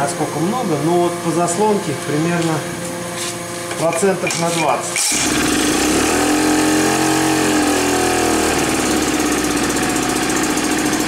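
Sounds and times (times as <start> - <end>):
outboard engine running: 4.0 - 11.0.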